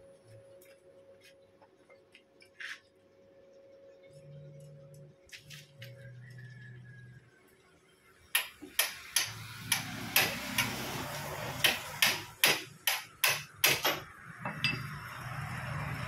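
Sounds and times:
steady low hum: 0.0s - 10.3s
metal-on-metal taps: 11.7s - 15.0s.

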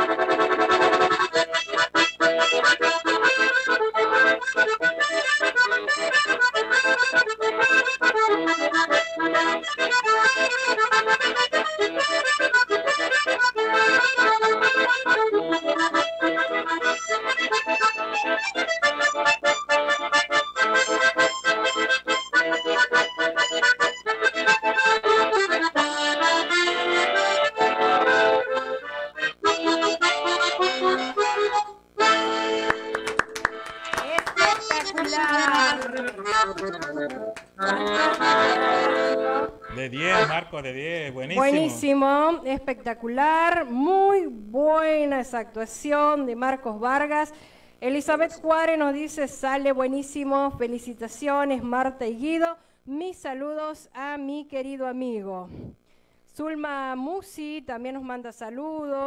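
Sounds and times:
accordion playing tune: 0.0s - 42.5s.

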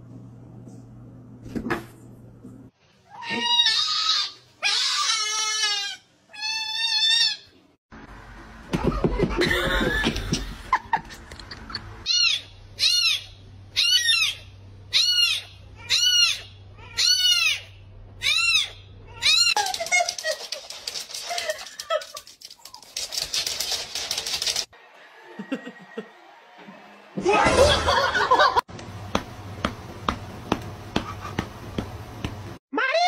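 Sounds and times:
cats meowing and yowling: 3.1s - 7.4s.

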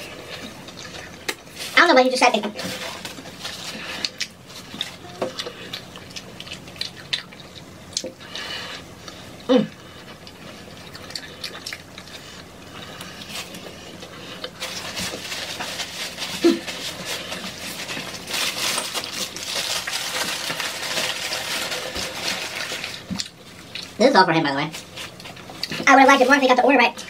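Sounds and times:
chewing with wet mouth sounds: 0.0s - 1.6s, 3.1s - 15.2s, 22.6s - 24.0s
paper wrapper rustling: 14.6s - 23.1s.

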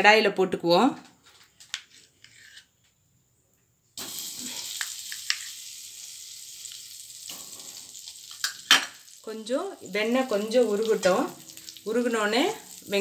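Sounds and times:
butter sizzling in a pan: 4.0s - 13.0s.

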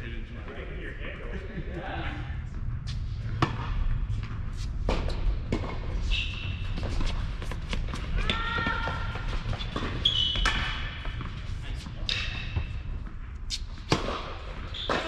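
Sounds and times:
steady low hum: 0.0s - 8.3s
shoe squeak on court: 9.6s - 10.9s, 14.7s - 15.0s.

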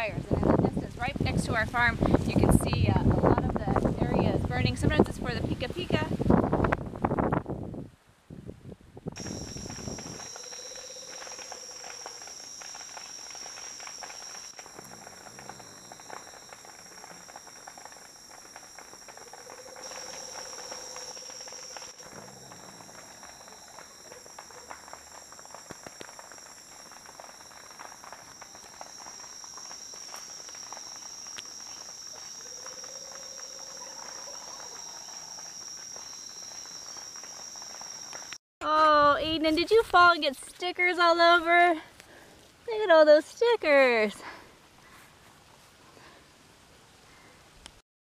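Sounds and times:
crickets trilling: 9.2s - 38.4s
faint clicks and crackles: 9.2s - 38.4s.

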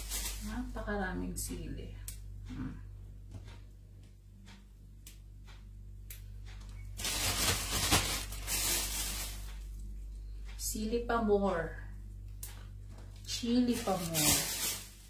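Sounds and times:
plastic bag crinkling: 0.0s - 0.7s, 7.0s - 9.6s, 13.7s - 15.0s.

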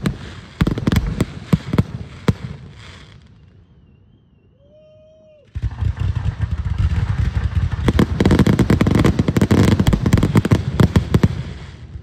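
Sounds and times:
faint thin whistling tones: 2.9s - 5.5s
firework rushing and crackling: 5.5s - 12.0s.

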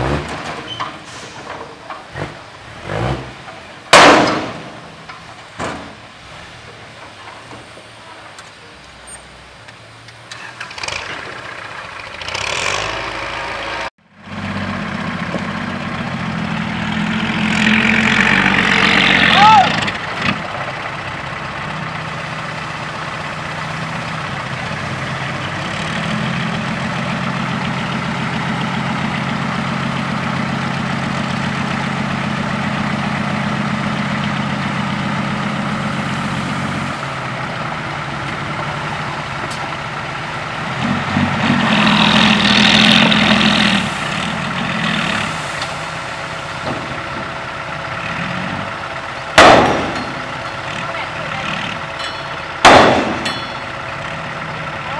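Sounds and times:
diesel truck engine running: 0.0s - 54.9s
loud metal clang: 3.9s - 4.9s, 49.4s - 50.5s, 52.0s - 53.8s.

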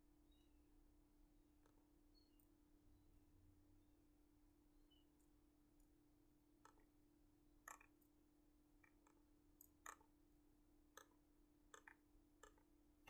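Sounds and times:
faint steady hum: 0.0s - 13.0s
computer mouse clicks: 7.7s - 8.1s, 11.0s - 12.7s.

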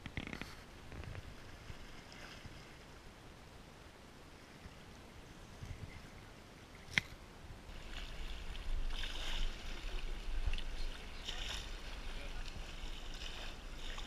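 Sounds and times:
water lapping at shoreline: 0.0s - 14.0s.

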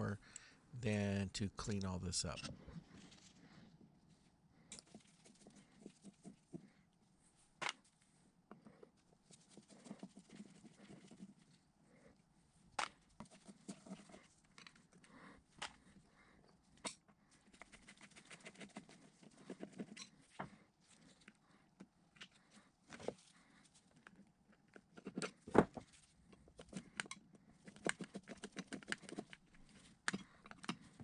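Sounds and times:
gloved fingers rubbing: 8.9s - 11.7s.

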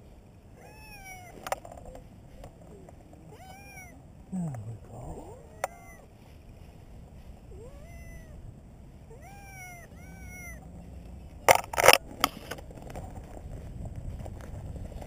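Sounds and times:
cat meowing: 0.6s - 1.4s, 3.2s - 4.0s, 5.2s - 6.1s, 7.5s - 8.4s, 9.1s - 10.6s.

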